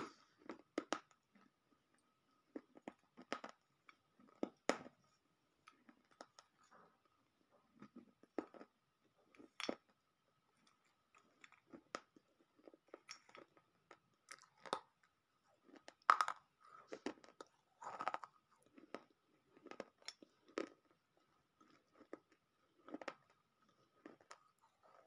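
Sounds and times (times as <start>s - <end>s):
crunchy chewing: 10.6s - 25.0s.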